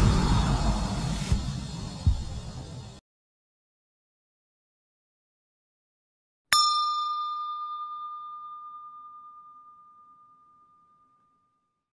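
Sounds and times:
bell ding ringing: 0:06.5 - 0:11.6.

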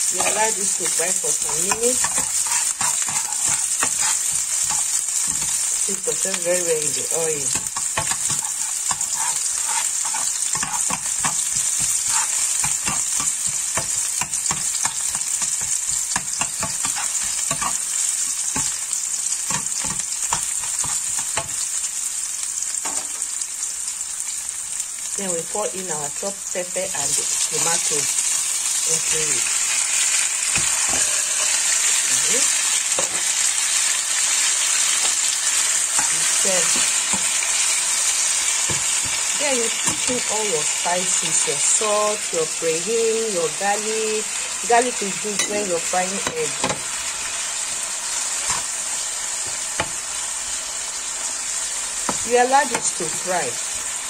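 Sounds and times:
onions sizzling in oil: 0:00.0 - 0:54.0
utensil scraping and knocking pan: 0:01.4 - 0:05.7, 0:07.5 - 0:17.8.

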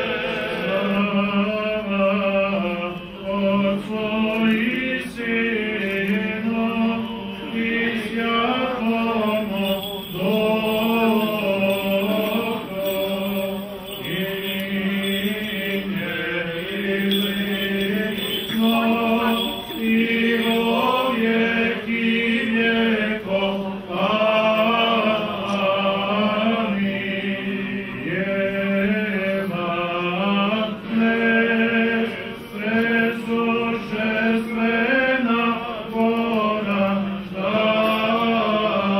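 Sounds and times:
men chanting a hymn: 0:00.0 - 0:38.9.

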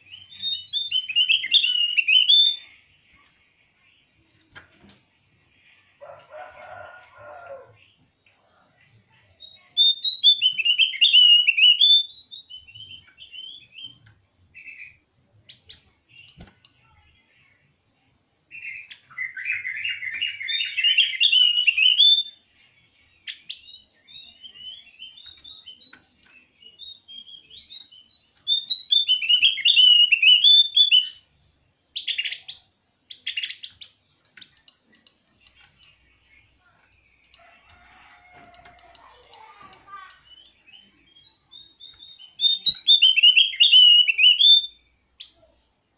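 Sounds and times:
bird chirps: 0:00.0 - 0:45.9
bird twittering: 0:23.3 - 0:31.2, 0:38.8 - 0:45.5.

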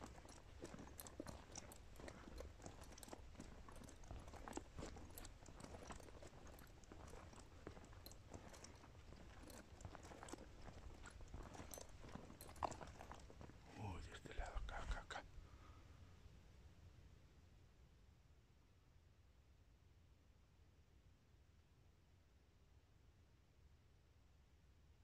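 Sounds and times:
faint crackles and clicks: 0:00.0 - 0:15.1.

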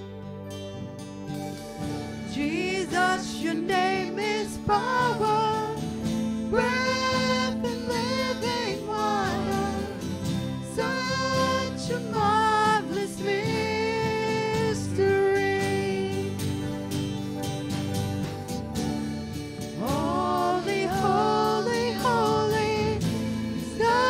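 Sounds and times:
live band playing: 0:01.0 - 0:24.0
woman singing: 0:02.3 - 0:05.9, 0:06.5 - 0:16.5, 0:19.8 - 0:24.0.

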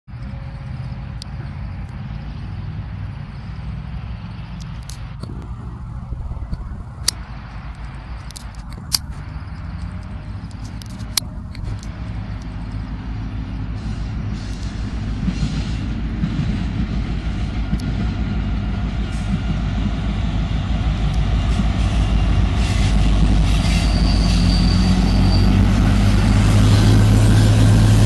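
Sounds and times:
distant diesel locomotives rumbling: 0:00.1 - 0:28.0
sharp clicks: 0:04.6 - 0:05.6, 0:06.5 - 0:12.8.

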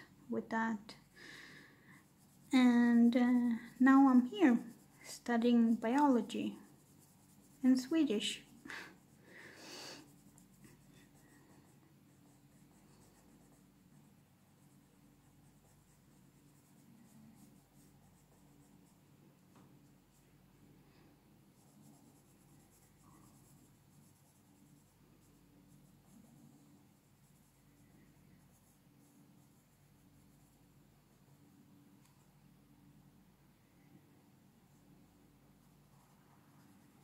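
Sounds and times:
low steady hum: 0:00.0 - 0:37.0
coloured pencil scratching on paper: 0:00.9 - 0:09.3, 0:10.0 - 0:19.1, 0:21.5 - 0:31.4, 0:35.6 - 0:37.0.

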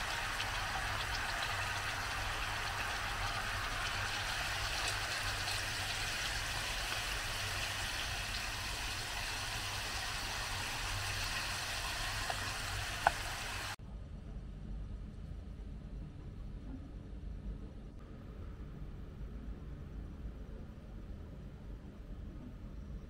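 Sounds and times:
chicken sizzling in oil: 0:00.0 - 0:13.8.

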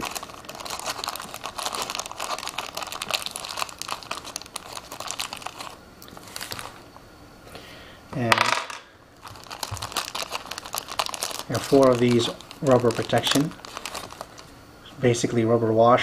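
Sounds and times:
plastic bag crinkling: 0:00.0 - 0:06.8, 0:08.6 - 0:14.6.

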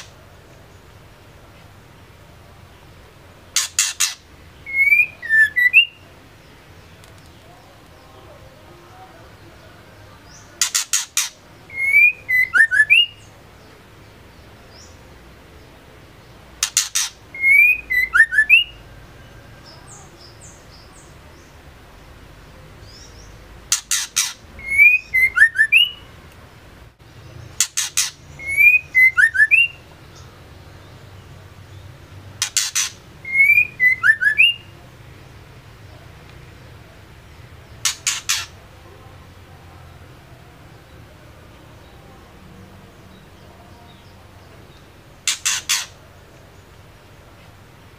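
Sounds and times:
bird slurred whistle: 0:03.6 - 0:06.0, 0:16.7 - 0:18.8, 0:32.5 - 0:34.6.

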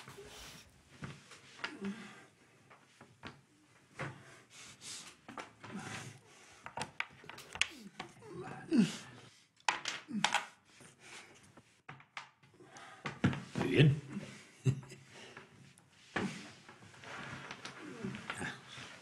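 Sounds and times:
soft breaths: 0:00.0 - 0:09.6, 0:10.5 - 0:11.9, 0:12.5 - 0:19.0
murmured voice: 0:07.4 - 0:09.2.

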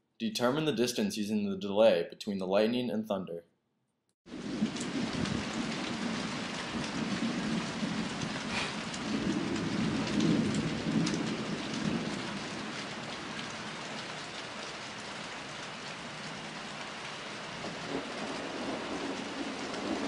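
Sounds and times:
distant thunder rumble: 0:04.3 - 0:13.8, 0:17.5 - 0:20.0
raindrop ticks: 0:04.3 - 0:20.0
steady rain falling: 0:04.3 - 0:20.0.

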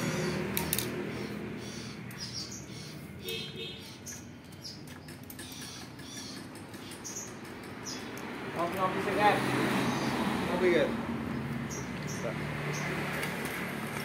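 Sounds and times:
small birds chirping: 0:00.0 - 0:13.6
clicks and knocks of parts handled: 0:00.5 - 0:01.0.

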